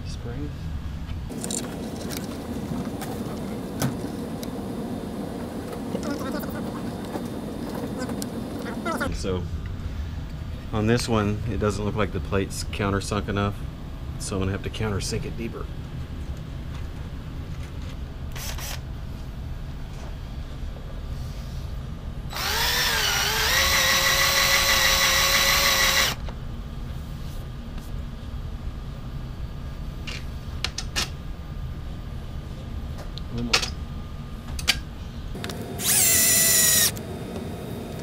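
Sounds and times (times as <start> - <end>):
cordless drill whirring: 22.3 - 26.2, 35.8 - 37.0.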